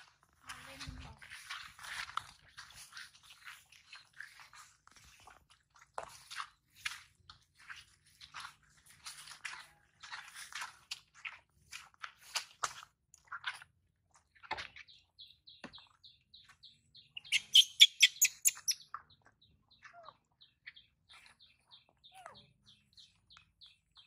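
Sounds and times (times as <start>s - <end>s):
bird chirping: 14.8s - 24.0s
shrill bird calls: 17.2s - 18.8s.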